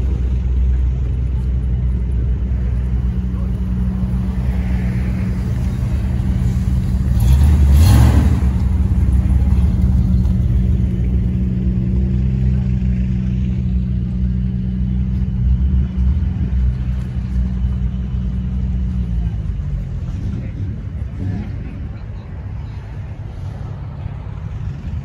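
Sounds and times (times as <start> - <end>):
car engine idling: 0.0 - 25.0.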